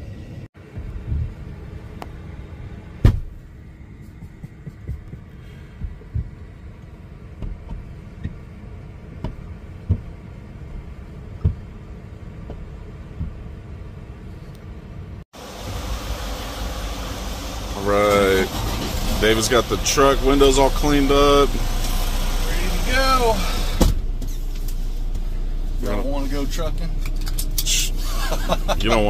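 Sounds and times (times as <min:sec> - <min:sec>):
steady low hum: 0:00.0 - 0:29.0
dull thuds against glass: 0:03.0 - 0:03.4.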